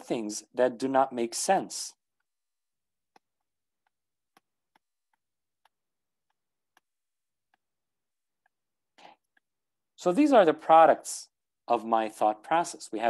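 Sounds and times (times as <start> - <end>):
stylus tapping on tablet screen: 2.2 - 9.6.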